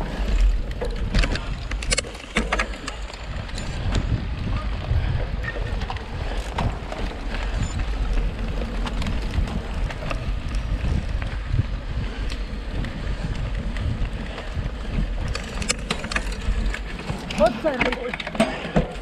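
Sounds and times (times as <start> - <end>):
bike rattling over gravel: 0.0 - 19.0
wind buffeting microphone: 0.0 - 19.0.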